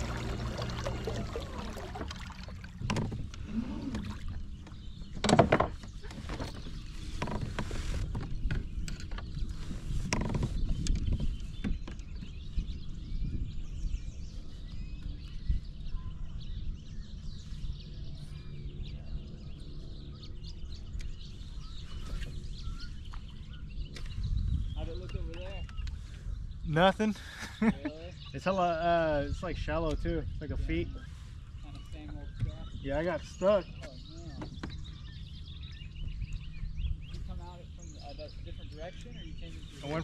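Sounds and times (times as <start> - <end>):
water lapping against kayak hull: 0.0 - 12.4.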